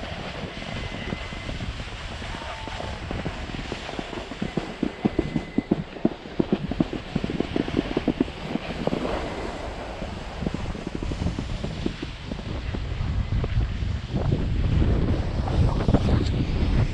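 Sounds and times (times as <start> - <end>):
skis scraping over packed snow: 0.0 - 16.9
wind on microphone: 0.0 - 16.9
rapid irregular clatter: 3.0 - 12.4.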